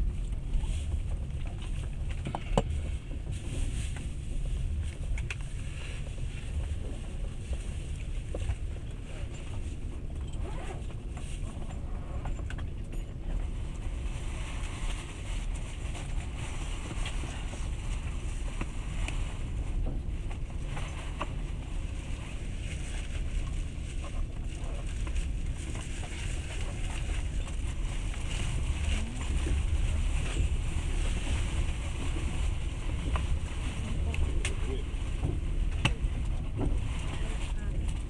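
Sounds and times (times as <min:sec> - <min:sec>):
train wheels rumbling on track: 0:00.0 - 0:38.0.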